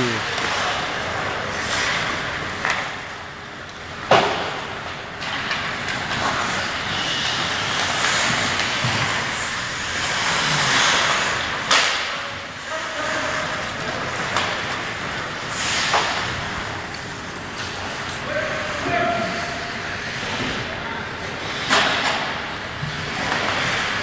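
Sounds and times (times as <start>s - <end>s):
skates scraping on ice: 0.2s - 24.0s
sharp knocks of sticks or puck: 4.0s - 9.2s, 10.2s - 12.2s.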